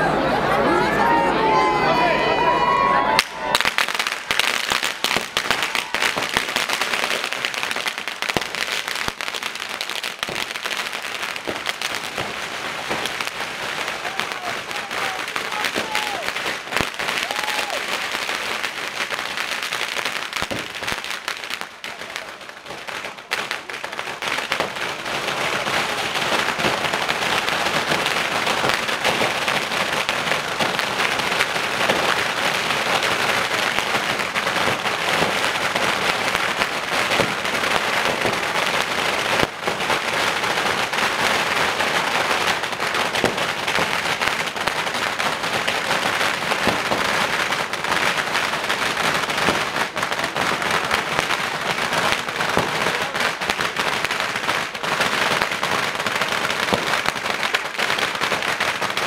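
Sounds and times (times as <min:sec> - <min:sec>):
firecrackers crackling: 0:02.4 - 0:59.0.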